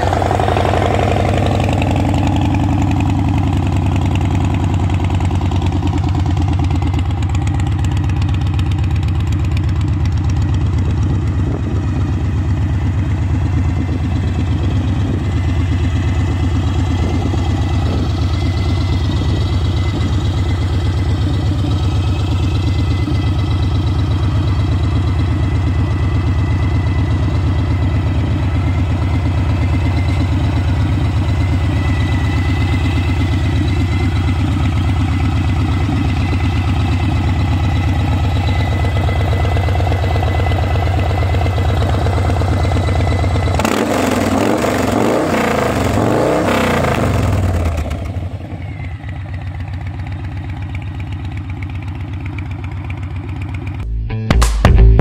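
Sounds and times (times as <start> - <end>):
motorcycle engine idling and revving: 0.0 - 55.0.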